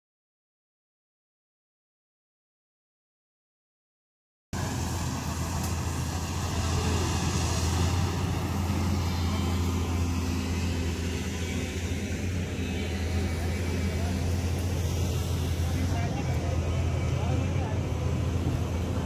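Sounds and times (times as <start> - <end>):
excavator diesel engine running: 4.6 - 19.0.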